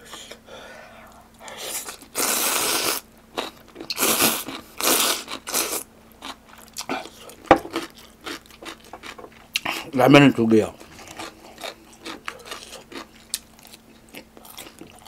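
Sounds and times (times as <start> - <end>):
slurping noodles: 1.6 - 3.0
chewing and mouth clicks: 10.8 - 15.0.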